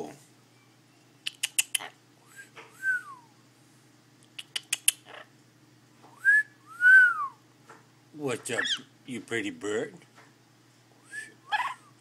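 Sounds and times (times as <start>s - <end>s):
parrot clicking: 1.2s - 1.9s, 4.4s - 5.2s
parrot whistle rising and falling: 6.2s - 7.4s.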